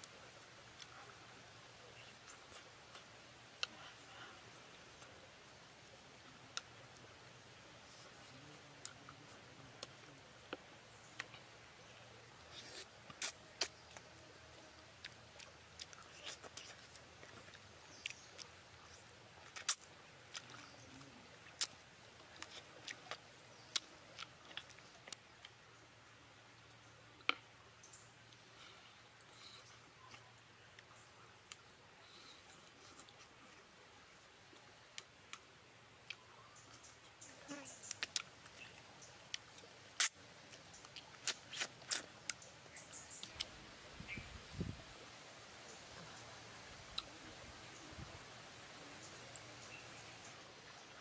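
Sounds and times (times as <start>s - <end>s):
crunchy chewing and mouth smacks: 12.5s - 25.6s, 34.5s - 43.5s, 46.8s - 47.1s
wet lip smacks and chewing: 39.3s - 42.4s.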